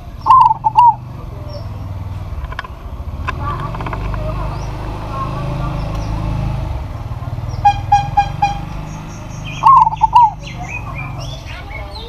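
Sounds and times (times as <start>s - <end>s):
dove cooing: 0.0s - 2.6s, 7.3s - 12.0s
small birds chirping: 0.0s - 12.0s.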